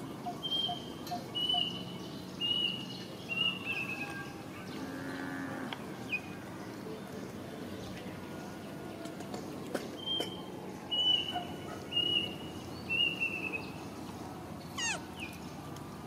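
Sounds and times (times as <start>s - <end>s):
low drawn-out animal call: 14.8s - 15.2s.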